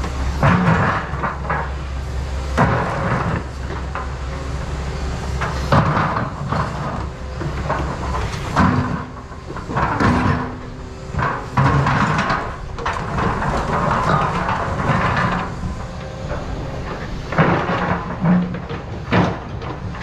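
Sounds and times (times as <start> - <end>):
excavator diesel engine: 0.0 - 20.0
bucket clunking and scraping rock: 5.7 - 10.6, 11.2 - 20.0.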